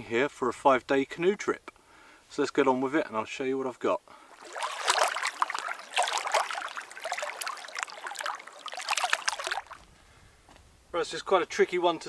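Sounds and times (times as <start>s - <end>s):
water lapping against rocks: 4.2s - 9.9s.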